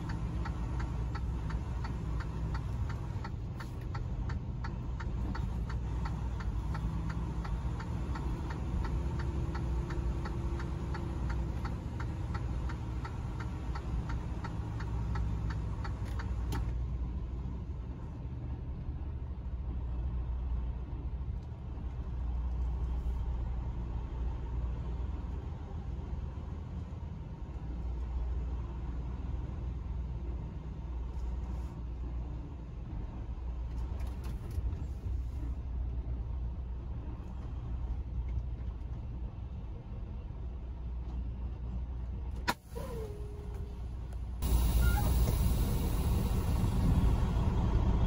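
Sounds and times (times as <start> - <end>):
turn signal click: 0.0 - 16.8
turn signal ticking: 0.0 - 16.8
diesel truck engine rumbling: 0.0 - 48.0.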